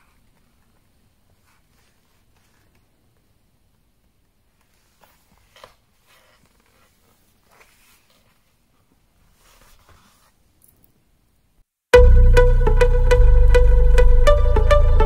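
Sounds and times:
leather and paper rustling: 4.6 - 10.4.

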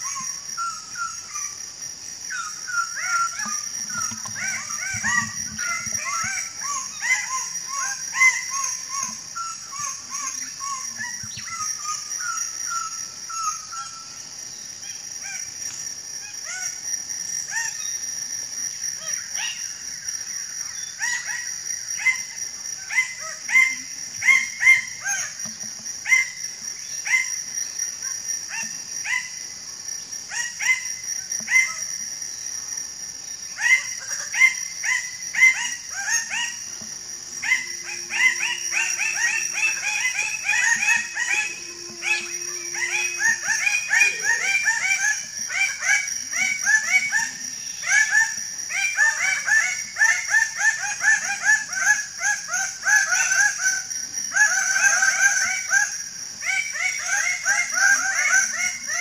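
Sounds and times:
high-pitched insect drone: 0.0 - 59.0
birds calling: 34.9 - 47.9.

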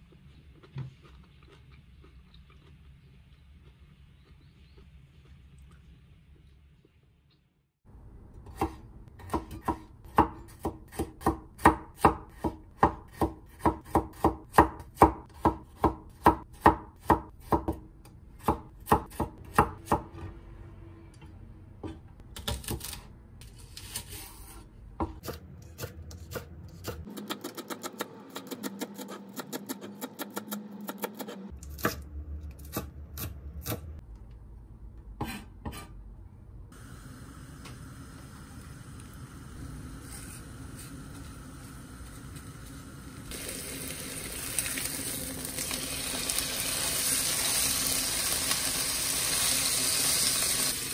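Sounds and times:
knife chopping on cutting board: 8.5 - 20.0.

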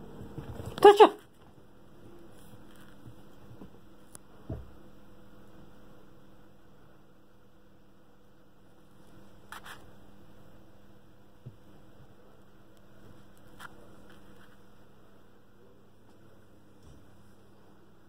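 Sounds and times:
low steady hum: 0.0 - 18.0
soft thump: 4.4 - 4.8.

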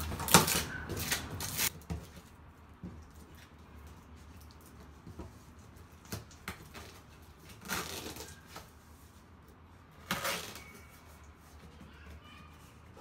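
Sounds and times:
packing tape tearing: 0.0 - 1.7, 6.0 - 8.7, 10.0 - 10.8.

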